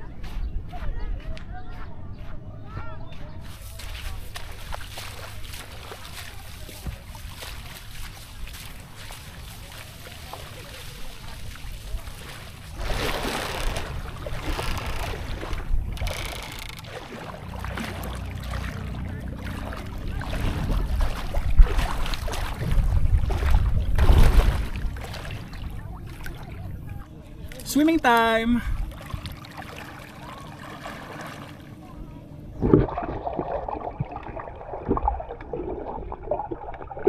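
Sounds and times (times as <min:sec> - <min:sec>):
water sloshing around wading legs: 0:03.4 - 0:37.0
wind buffeting microphone: 0:10.6 - 0:27.1.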